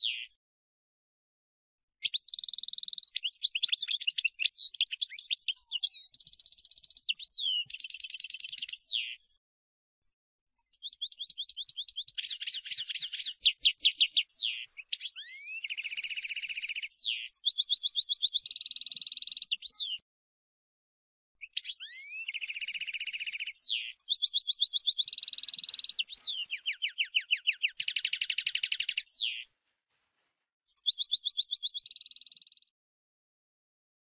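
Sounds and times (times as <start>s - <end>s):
goldfinch singing: 2.0s - 9.2s, 10.6s - 20.0s, 21.4s - 29.4s.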